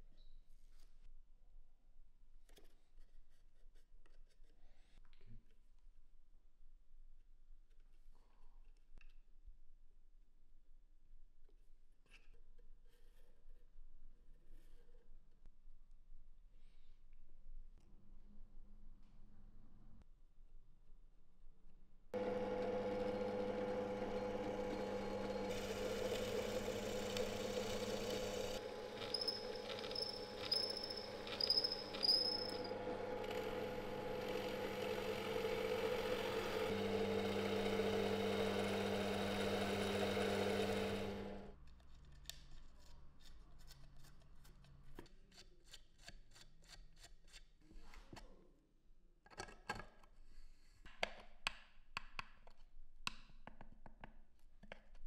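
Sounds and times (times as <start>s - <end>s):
power tool motor running: 22.2s - 41.5s
short high squeals: 28.6s - 32.7s.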